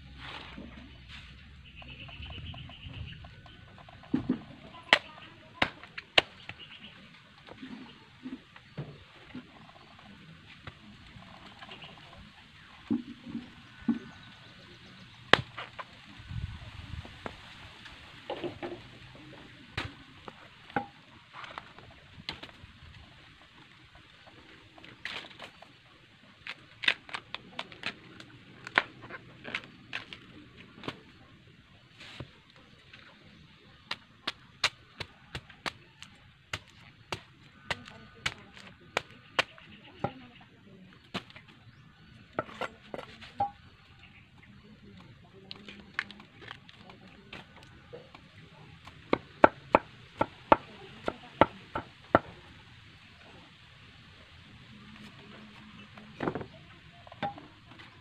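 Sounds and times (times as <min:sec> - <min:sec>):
bamboo sheaths cracking: 0:04.8 - 0:06.7, 0:24.8 - 0:31.2, 0:33.8 - 0:39.7.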